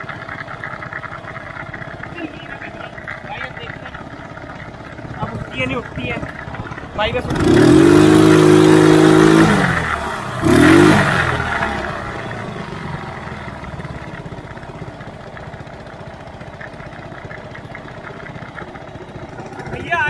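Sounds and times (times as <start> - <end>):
quad bike engine revving: 0.0 - 20.0.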